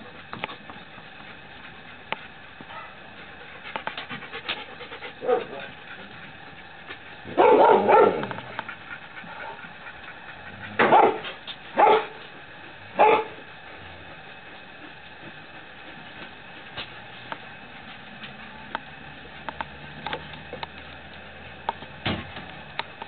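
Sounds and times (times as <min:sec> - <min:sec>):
dog barking: 0:02.7 - 0:03.0, 0:05.2 - 0:05.6, 0:07.3 - 0:08.3, 0:10.8 - 0:12.2, 0:13.0 - 0:13.4.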